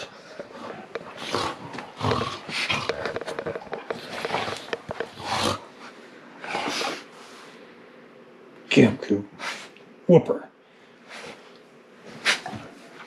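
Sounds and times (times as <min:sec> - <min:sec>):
dogs growling and snarling: 0:00.0 - 0:07.1.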